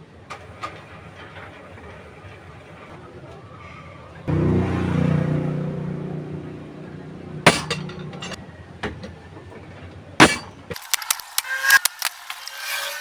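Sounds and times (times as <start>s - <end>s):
tools striking sheet metal: 7.4s - 8.4s, 10.2s - 12.8s.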